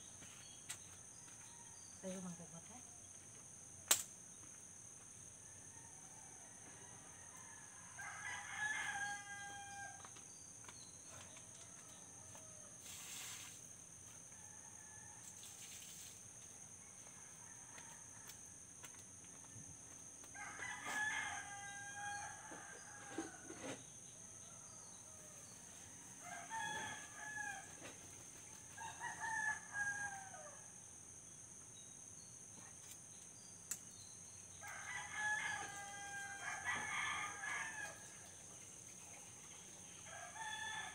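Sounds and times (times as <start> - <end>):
roosters crowing: 5.9 - 10.0, 20.3 - 23.8, 26.1 - 27.9, 34.6 - 38.2, 40.0 - 40.9.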